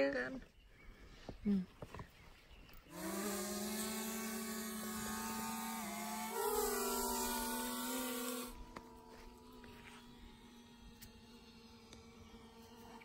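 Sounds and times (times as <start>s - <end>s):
drone propellers humming: 2.8s - 13.0s.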